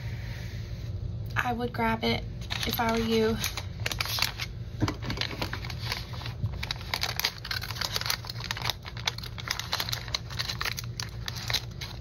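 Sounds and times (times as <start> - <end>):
paper wrapping crinkling: 2.4 - 12.0.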